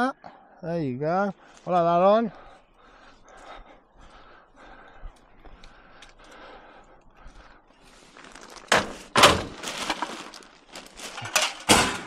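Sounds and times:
metal rattling clatter: 0:11.0 - 0:12.0.

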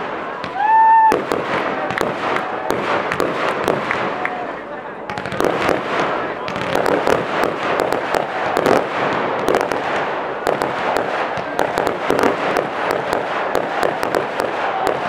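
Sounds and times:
firework bangs: 0:00.0 - 0:15.0.

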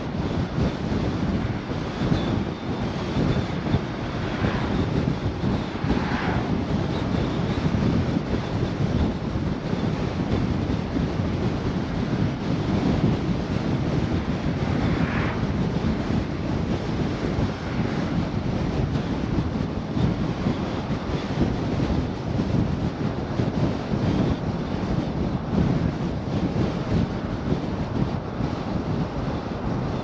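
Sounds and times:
car wind and tyre rumble: 0:00.0 - 0:30.0
vehicle swishing past: 0:05.7 - 0:06.6.

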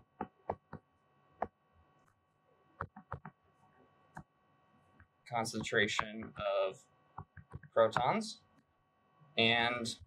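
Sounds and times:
faint steady hum: 0:00.0 - 0:10.0
stylus tapping on tablet screen: 0:00.2 - 0:01.6, 0:02.8 - 0:03.4, 0:07.2 - 0:08.2.

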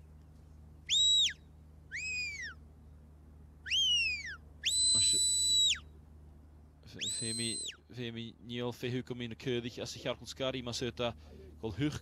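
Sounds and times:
shepherd's whistle: 0:00.9 - 0:02.6, 0:03.6 - 0:05.9, 0:07.0 - 0:07.8.

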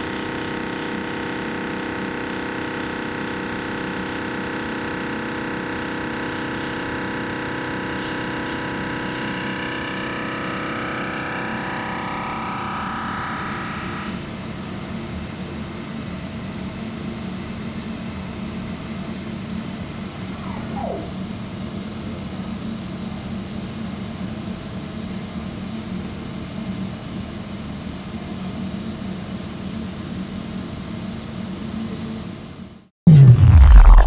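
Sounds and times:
brief falling whine: 0:20.3 - 0:21.4, 0:33.1 - 0:34.0.

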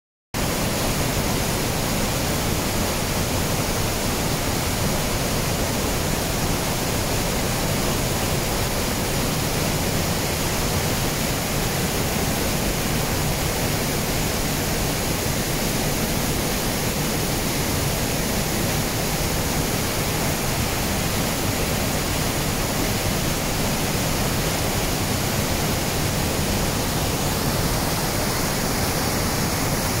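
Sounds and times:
waterfall rushing: 0:00.4 - 0:30.0.

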